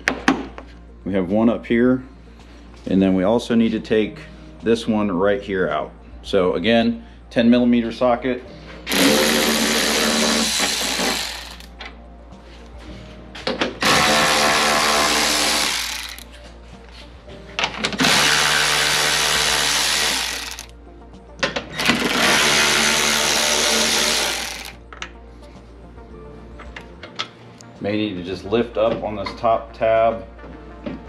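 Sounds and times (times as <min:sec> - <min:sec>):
electric ratchet running: 0:08.9 - 0:11.7, 0:13.8 - 0:16.3, 0:18.0 - 0:20.7, 0:21.8 - 0:24.8.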